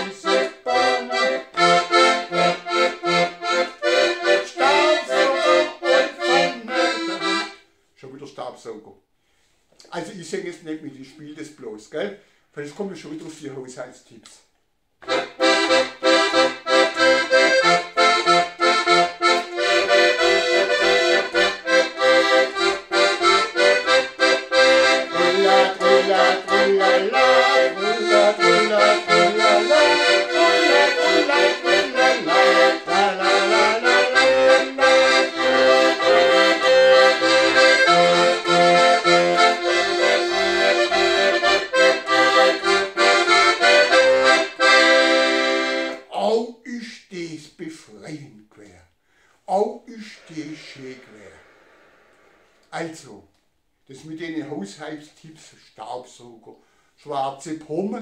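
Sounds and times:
accordion tune: 0.0s - 7.9s, 15.0s - 46.2s, 49.3s - 53.0s
accordion bass and chords: 0.0s - 8.4s, 15.0s - 47.9s, 49.3s - 55.2s.

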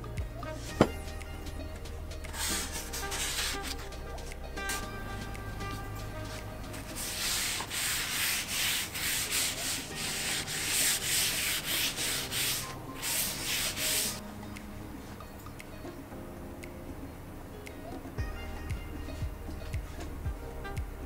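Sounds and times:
paper towel rubbing wooden board: 2.3s - 3.8s, 6.2s - 14.2s.

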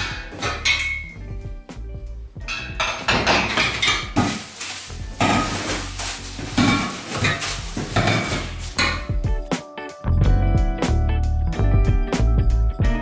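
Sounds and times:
metal tubes clinking and clattering: 0.0s - 1.2s, 2.4s - 9.3s.

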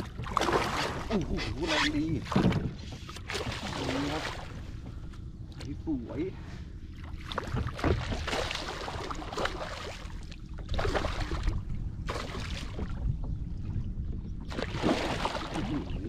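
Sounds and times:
fish thrashing splashes: 7.2s - 12.8s, 14.5s - 15.9s.

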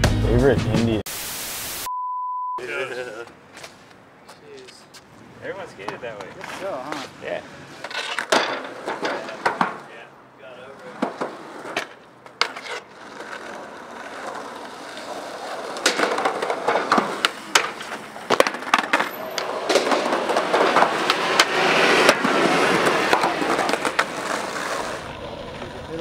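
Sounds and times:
skateboard wheels rolling on concrete: 2.6s - 26.0s
skateboard clacking on ground: 5.8s - 7.0s, 7.8s - 9.9s, 10.7s - 26.0s.

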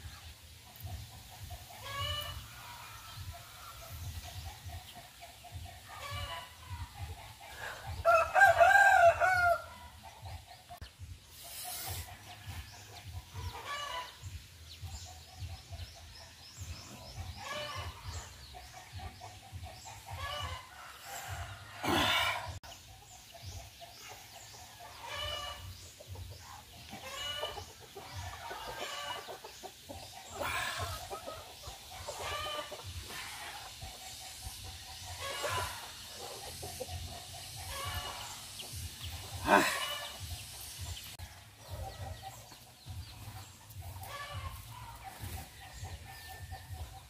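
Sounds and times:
chickens clucking: 0.0s - 47.0s
roosters crowing: 5.9s - 10.0s, 17.1s - 18.4s, 19.8s - 22.6s, 26.8s - 29.5s, 30.2s - 33.9s, 35.1s - 36.4s, 37.6s - 42.6s.

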